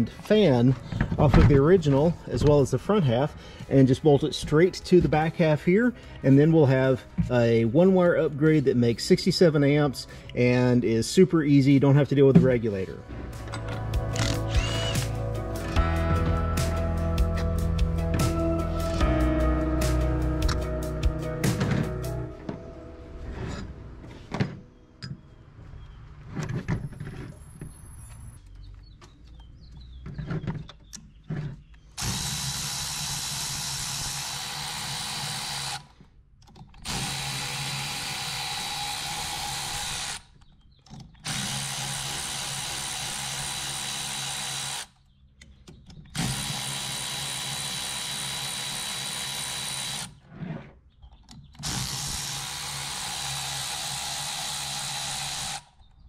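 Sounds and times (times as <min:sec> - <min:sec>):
power drill running: 0:14.1 - 0:16.8, 0:32.0 - 0:35.9, 0:36.8 - 0:40.3, 0:41.2 - 0:45.0, 0:46.2 - 0:50.2, 0:51.6 - 0:55.8.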